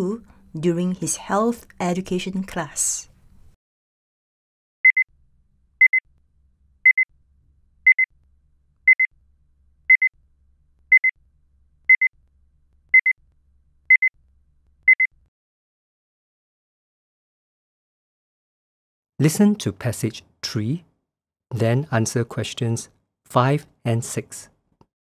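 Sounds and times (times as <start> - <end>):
electronic timer beeping: 4.8 - 5.1, 5.8 - 6.0, 6.8 - 7.1, 7.8 - 8.1, 8.9 - 9.1, 9.9 - 10.1, 10.9 - 11.1, 11.9 - 12.1, 12.9 - 13.2, 13.9 - 14.1, 14.9 - 15.1.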